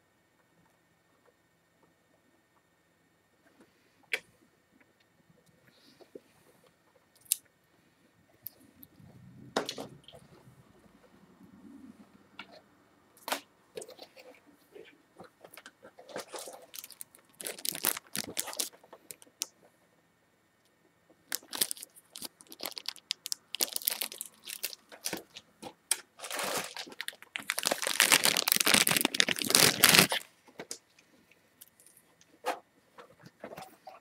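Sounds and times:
packaging rustling and crinkling: 0:16.1 - 0:19.4, 0:21.3 - 0:30.3
packaging tearing: 0:16.2 - 0:19.4, 0:21.3 - 0:25.4, 0:26.2 - 0:30.3.

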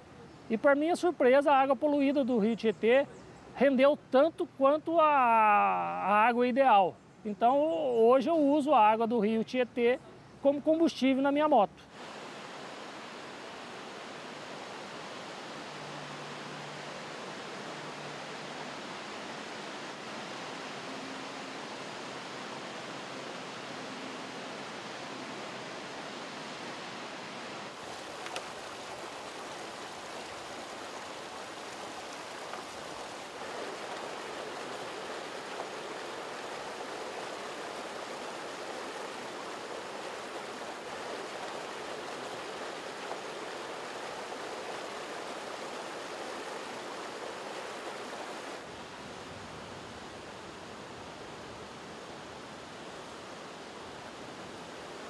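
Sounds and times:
river water rushing: 0:04.9 - 0:55.0.

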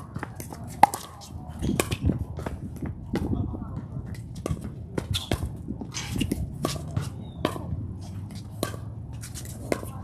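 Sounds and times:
shoe scuffs on hard court: 0:04.4 - 0:10.0.

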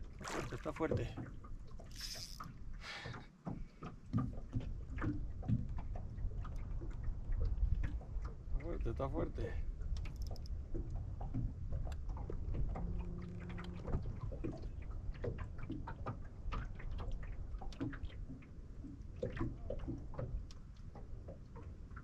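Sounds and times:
water splashing and sloshing: 0:00.0 - 0:22.0
steady low rumble: 0:08.4 - 0:15.6
small clicks and knocks: 0:09.9 - 0:12.9
low hum: 0:10.2 - 0:16.5.

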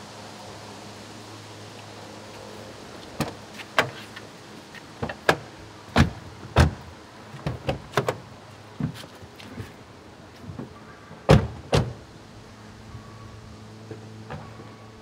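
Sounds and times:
car doors unlatching clicks: 0:05.0 - 0:09.0, 0:10.5 - 0:12.0.

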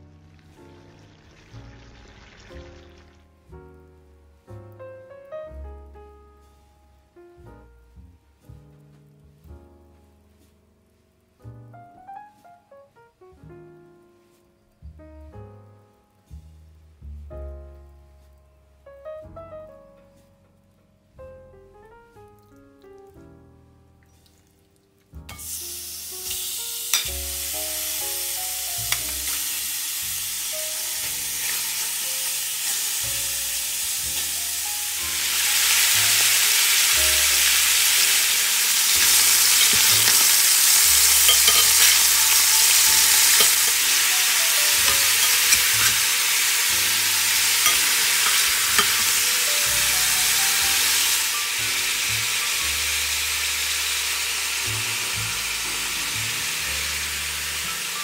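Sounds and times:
pork sizzling in a pan: 0:00.0 - 0:03.2, 0:25.1 - 0:58.0.

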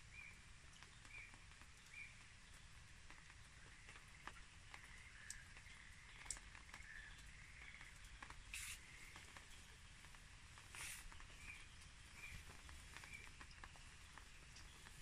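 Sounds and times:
faint clicks: 0:00.7 - 0:15.0
soil and roots rustling: 0:03.1 - 0:15.0.

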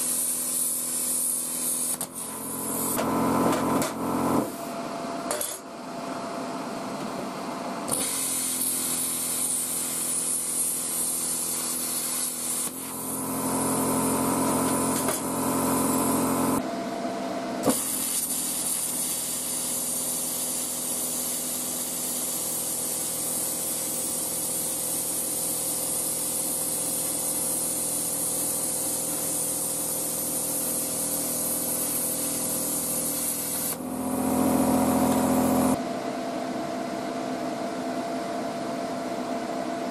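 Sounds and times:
plasma cutter arc hissing: 0:00.0 - 0:04.7, 0:07.9 - 0:16.6, 0:17.6 - 0:35.8
compressor hum: 0:10.6 - 0:18.2, 0:28.5 - 0:39.8.

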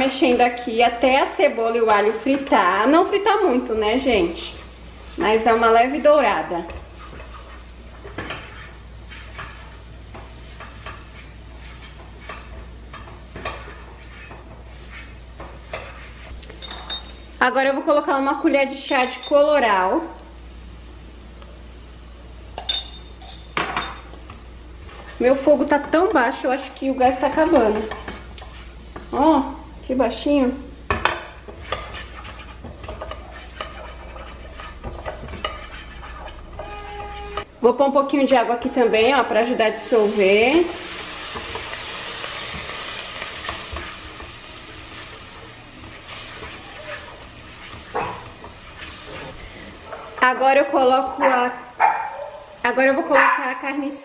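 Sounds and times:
garlic and onion sizzling in pan: 0:00.0 - 0:54.0
utensil scraping pan: 0:03.4 - 0:16.4, 0:24.8 - 0:29.3, 0:30.9 - 0:37.5, 0:38.3 - 0:50.1.

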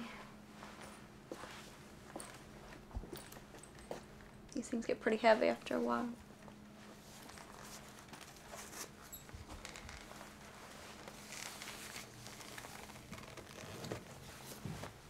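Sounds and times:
steady low hum: 0:00.0 - 0:15.0
gun belt rustling and clicking: 0:07.2 - 0:10.2, 0:11.0 - 0:14.1.

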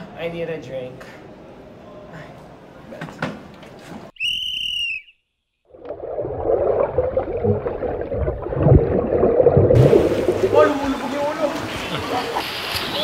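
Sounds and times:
shrill whistle-like tone: 0:04.2 - 0:05.5
muffled churning water underwater: 0:05.7 - 0:11.2
dull low underwater thumps: 0:05.8 - 0:10.9.

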